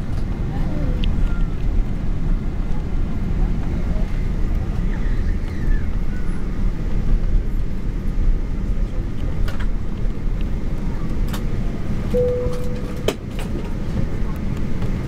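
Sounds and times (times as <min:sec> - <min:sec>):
airliner cabin rumble: 0:00.0 - 0:15.0
short steady tone: 0:12.1 - 0:13.2.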